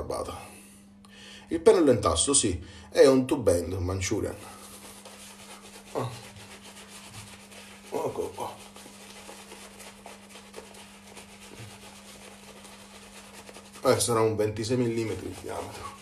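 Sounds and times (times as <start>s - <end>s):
shaving brush rubbing on skin: 4.0s - 16.0s.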